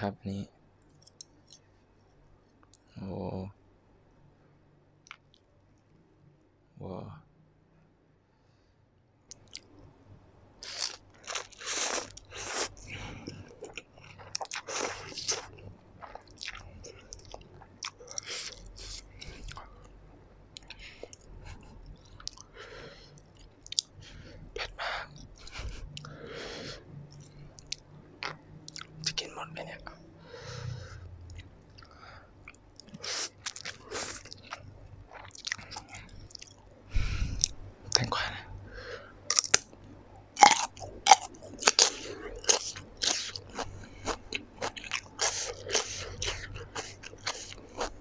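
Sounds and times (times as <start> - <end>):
wet chewing: 10.6 - 19.7, 39.3 - 39.8, 40.4 - 48.0.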